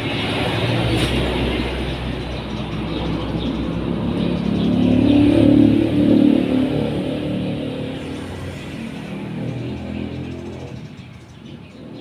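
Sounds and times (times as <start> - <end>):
motor vehicle passing by: 0.0 - 12.0
sparrows chirping: 0.0 - 12.0.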